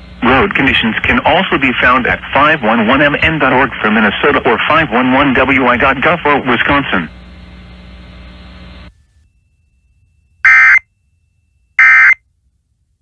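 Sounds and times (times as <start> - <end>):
low hum: 0.0 - 13.0
digital data tone bursts: 10.4 - 10.8, 11.8 - 12.2.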